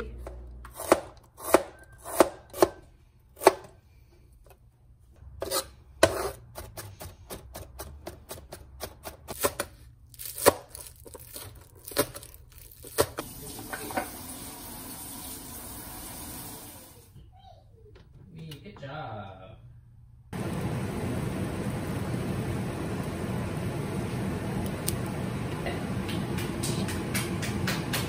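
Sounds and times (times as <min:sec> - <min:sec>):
sharp knocks and taps: 0:26.0 - 0:28.0.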